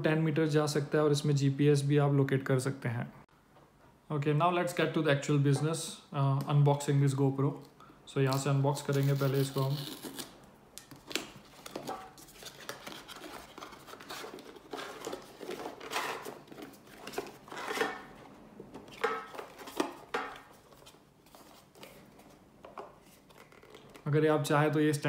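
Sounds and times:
packaging rustling and scraping: 0:08.8 - 0:24.1
paper tear strip ripping: 0:08.9 - 0:10.4.

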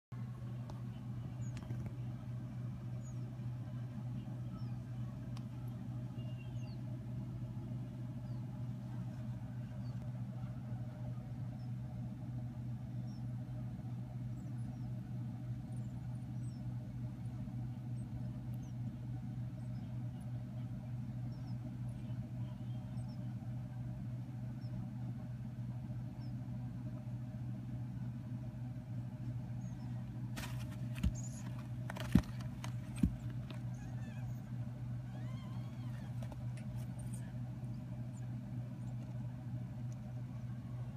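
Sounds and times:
low hum: 0:00.1 - 0:40.9
parrot chicks peeping: 0:29.5 - 0:37.5.

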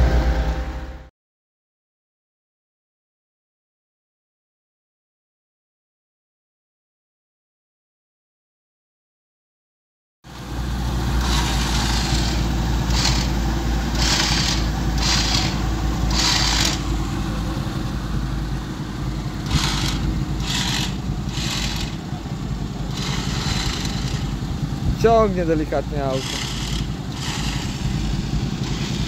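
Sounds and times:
vehicle engine rumbling: 0:00.0 - 0:01.1, 0:10.3 - 0:29.0.

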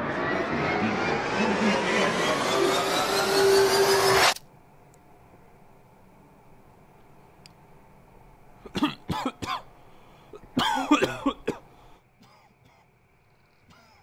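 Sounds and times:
man coughing: 0:08.7 - 0:09.7, 0:10.3 - 0:12.9.

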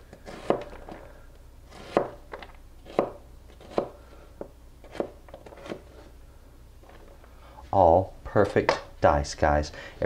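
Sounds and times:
knife dicing onion on cutting board: 0:01.7 - 0:02.2, 0:02.8 - 0:04.0.

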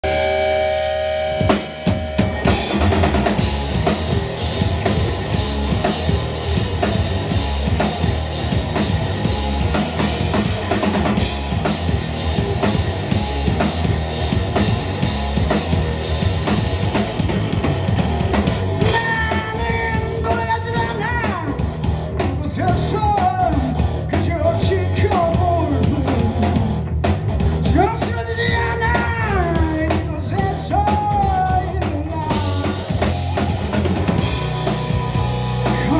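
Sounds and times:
held guitar chord ringing: 0:00.0 - 0:05.6
drum kit beat: 0:00.0 - 0:35.9
electric bass: 0:00.0 - 0:35.9
person singing: 0:18.8 - 0:21.6, 0:27.7 - 0:33.6, 0:35.6 - 0:35.9.

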